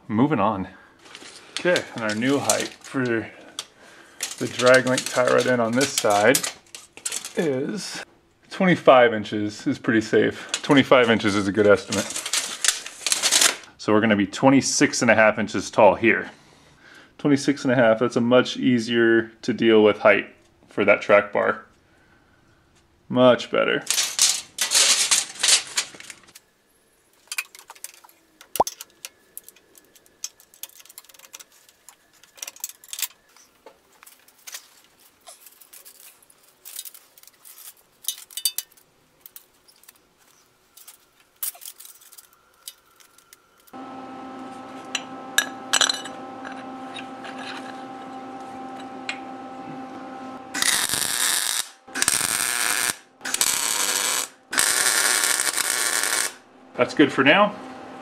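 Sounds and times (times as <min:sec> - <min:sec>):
metal parts clinking: 0:01.0 - 0:07.5, 0:11.9 - 0:13.6, 0:23.9 - 0:26.4, 0:27.2 - 0:43.8, 0:45.4 - 0:47.8
steady hum: 0:39.3 - 0:58.0
welding crackling: 0:50.5 - 0:56.4.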